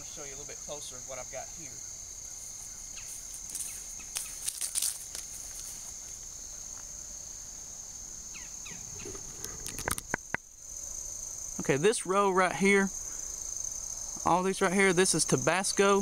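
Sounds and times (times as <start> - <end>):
crickets chirring: 0.0 - 16.0
short rustles and clicks: 3.4 - 5.9.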